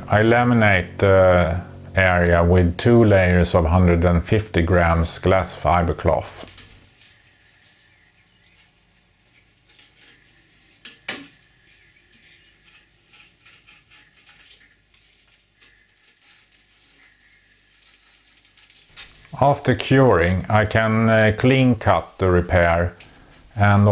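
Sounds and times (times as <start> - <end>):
hand tool clicking and scraping: 9.3 - 10.9, 11.7 - 17.2.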